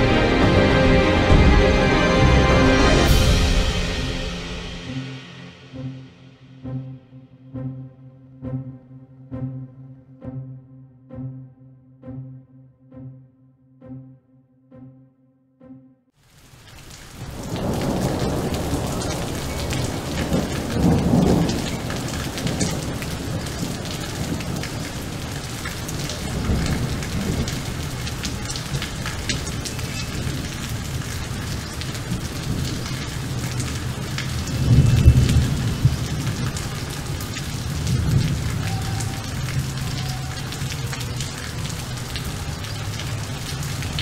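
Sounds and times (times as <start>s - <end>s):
steady rain falling: 0.0s - 5.0s, 16.2s - 44.0s
low thunder rolling: 17.2s - 40.8s.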